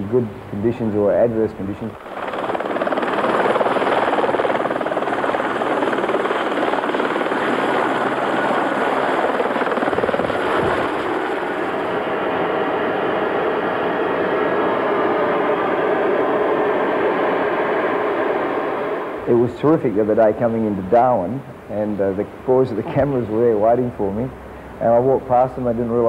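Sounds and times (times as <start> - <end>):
helicopter turbine running: 0.0 - 25.9
helicopter blade chop: 2.0 - 19.4.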